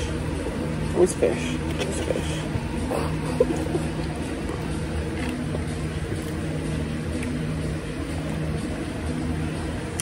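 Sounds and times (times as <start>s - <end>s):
machine humming: 0.0s - 10.0s.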